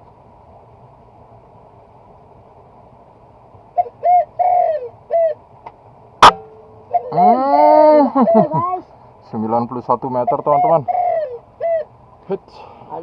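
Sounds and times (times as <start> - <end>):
bird calling: 3.7 - 5.4, 6.2 - 9.0, 10.0 - 12.0.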